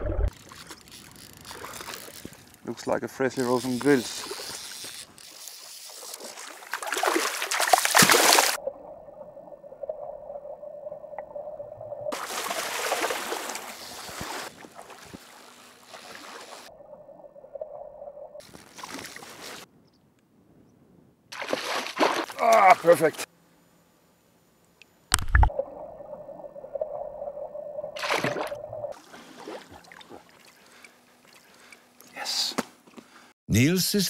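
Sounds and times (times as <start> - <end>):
fish splashing and thrashing: 0.0 - 2.6, 3.4 - 9.3, 12.1 - 17.0, 17.8 - 19.7, 21.3 - 23.0, 27.9 - 32.0.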